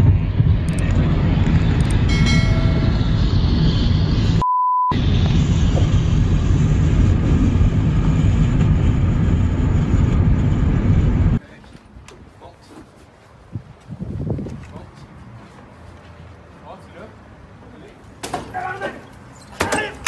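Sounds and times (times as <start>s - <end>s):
car wind and road noise: 0.0s - 4.4s, 5.0s - 20.0s
censor bleep: 4.4s - 5.0s.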